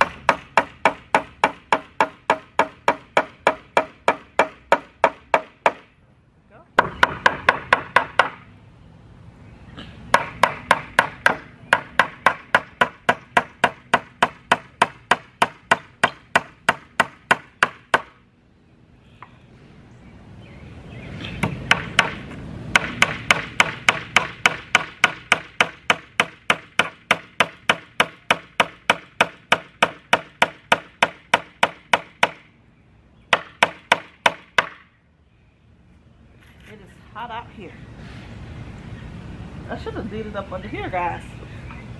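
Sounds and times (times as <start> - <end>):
hammer driving nails into wood: 21.4 - 32.4.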